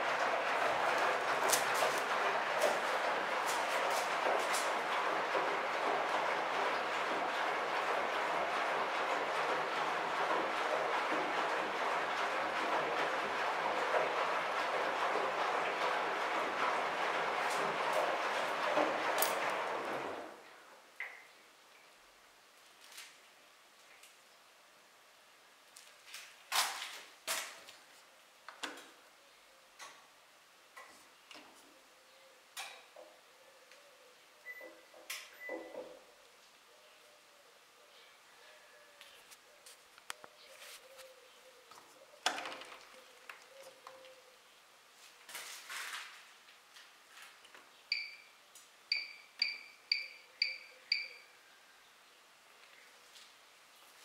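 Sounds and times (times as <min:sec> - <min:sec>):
rustling: 0:39.1 - 0:44.0
high two-tone beeps: 0:47.9 - 0:48.3, 0:48.9 - 0:51.2.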